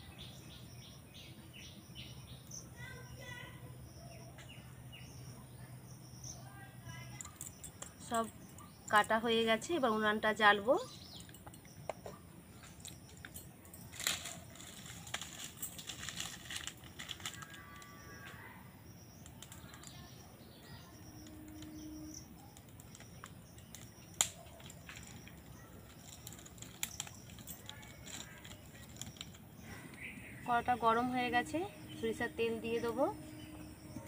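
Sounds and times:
twigs rustling and cracking: 11.1s - 18.4s, 19.1s - 20.2s, 21.0s - 31.1s.

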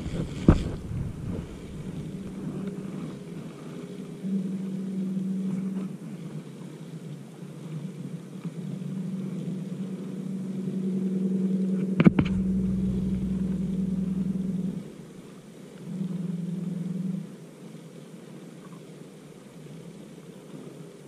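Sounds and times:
sharp knock: 12.0s - 13.6s.

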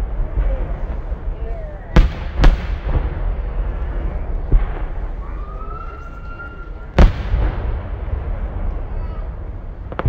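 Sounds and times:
firework bang: 1.9s - 10.0s
firework whistle: 4.7s - 7.2s
firework launch thud: 6.9s - 9.2s.

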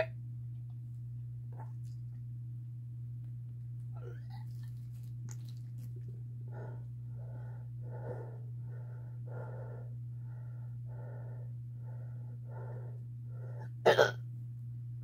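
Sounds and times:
steady low hum: 0.0s - 15.0s
person breathing heavily: 6.4s - 13.8s.

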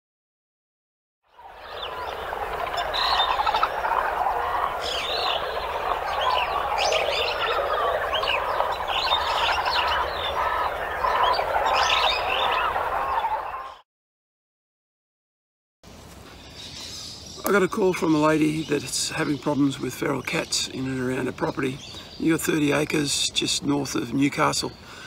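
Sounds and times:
frogs calling: 1.3s - 13.8s
higher chirps: 1.4s - 13.2s.

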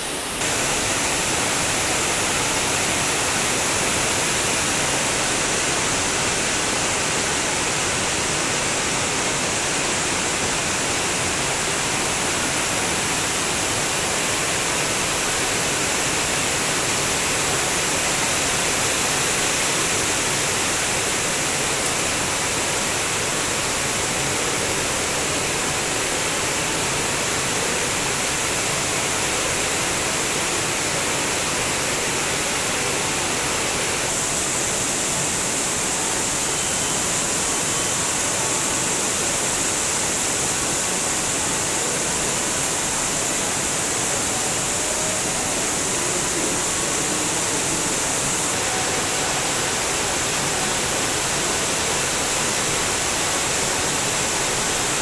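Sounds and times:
heavy rain pouring: 0.0s - 55.0s.

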